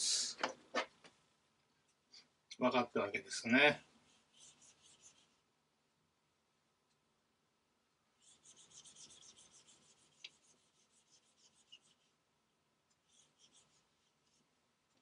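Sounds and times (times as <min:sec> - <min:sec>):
eraser wiping whiteboard: 0:04.1 - 0:05.4, 0:08.2 - 0:12.2, 0:13.0 - 0:14.5.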